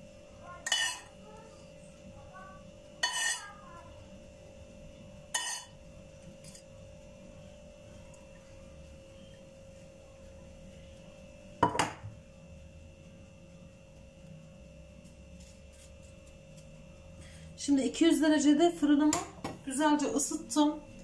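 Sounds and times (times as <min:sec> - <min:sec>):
faint steady hum: 0:00.0 - 0:21.0
kitchenware knocking and clinking: 0:11.6 - 0:12.1.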